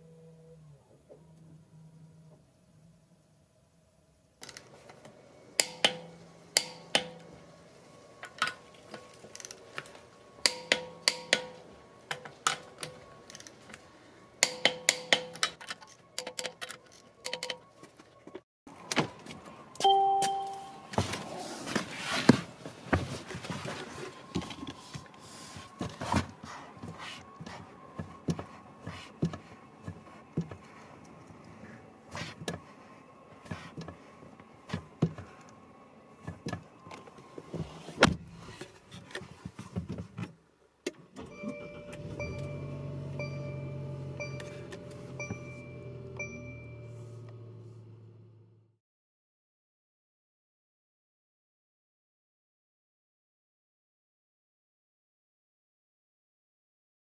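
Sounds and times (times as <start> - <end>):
two-note electronic car chime: 19.8 - 20.9, 41.2 - 47.2.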